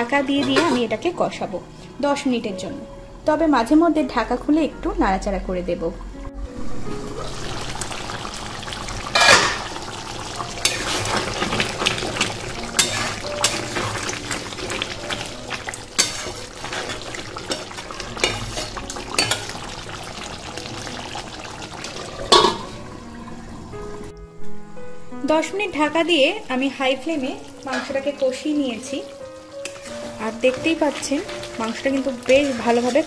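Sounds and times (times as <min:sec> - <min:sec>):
chicken sizzling in a pan: 0:06.8 - 0:24.1, 0:26.0 - 0:33.0
metal spatula scraping pan: 0:12.6 - 0:14.1, 0:15.9 - 0:19.5.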